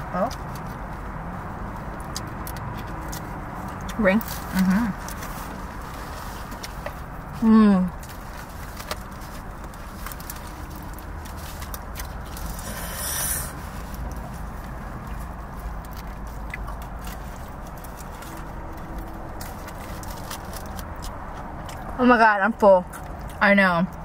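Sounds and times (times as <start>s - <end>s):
chewing with mouth clicks: 1.7s - 7.4s, 8.0s - 22.0s, 22.8s - 24.0s
rustle: 4.2s - 20.8s.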